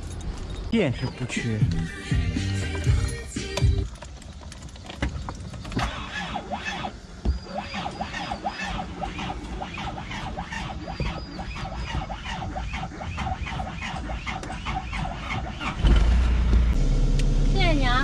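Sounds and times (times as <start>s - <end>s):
diesel engine running: 0.0s - 4.4s, 5.8s - 18.0s
starter cranking engine with squeal: 0.3s - 16.8s.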